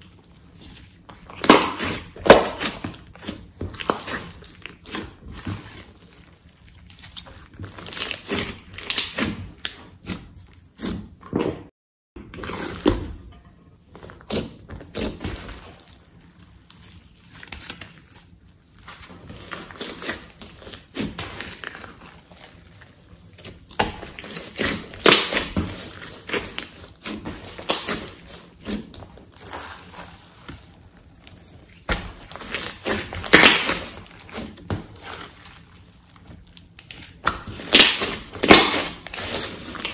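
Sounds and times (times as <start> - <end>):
slime squishing: 0.0 - 13.3, 13.9 - 39.9
slime pops and crackles: 1.3 - 2.8, 7.7 - 9.8, 27.4 - 28.2, 32.0 - 34.1, 37.1 - 39.9.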